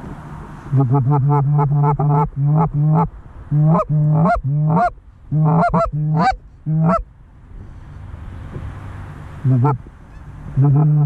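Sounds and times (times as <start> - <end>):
goose honks and clucks: 0.7 - 7.0, 9.4 - 11.0.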